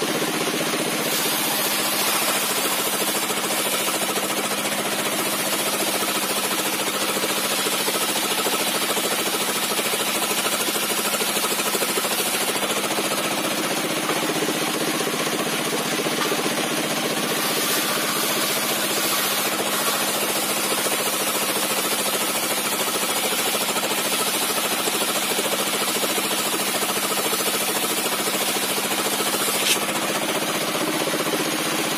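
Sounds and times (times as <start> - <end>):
circular saw cutting timber: 0.0 - 31.9.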